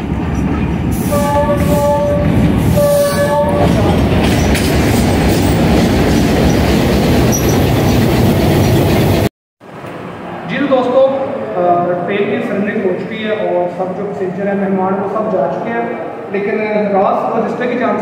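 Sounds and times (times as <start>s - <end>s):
train wheel noise: 0.0s - 10.2s
locomotive horn blasts: 1.0s - 3.8s.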